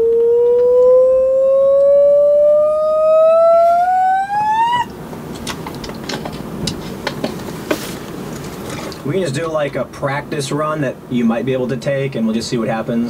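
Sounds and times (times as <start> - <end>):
person singing rising ooh: 0.0 - 4.9.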